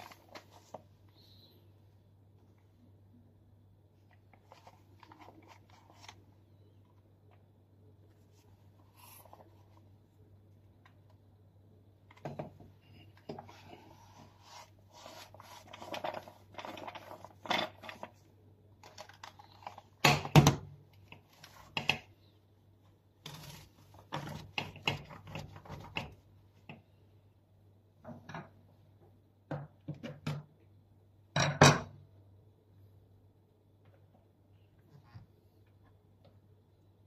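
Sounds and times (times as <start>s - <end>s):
paper towel rustling on plastic: 13.3s - 18.2s.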